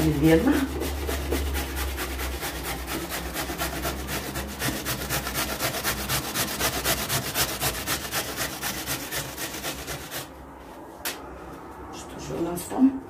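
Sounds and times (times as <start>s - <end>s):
carrot grating on grater: 0.0s - 10.4s.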